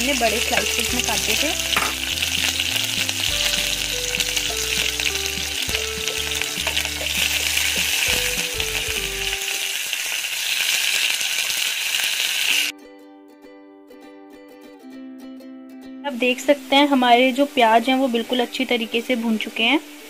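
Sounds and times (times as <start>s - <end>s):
onions sizzling in hot oil: 0.0s - 12.7s.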